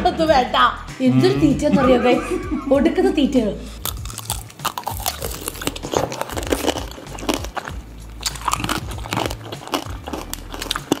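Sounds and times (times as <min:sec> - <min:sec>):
candied fruit crunching: 0:03.7 - 0:11.0.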